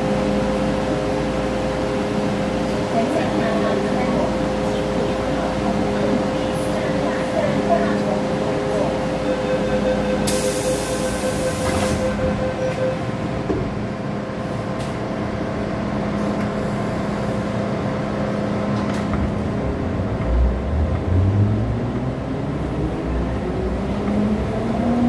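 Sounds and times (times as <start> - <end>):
train running hum: 0.0 - 25.0.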